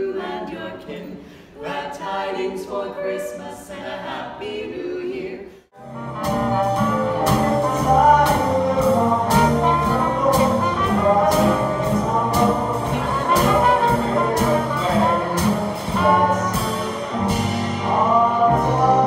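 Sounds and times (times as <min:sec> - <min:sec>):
double bass: 0:05.8 - 0:19.0
horn-like lead melody: 0:05.8 - 0:19.0
jazz band playing: 0:05.8 - 0:19.0.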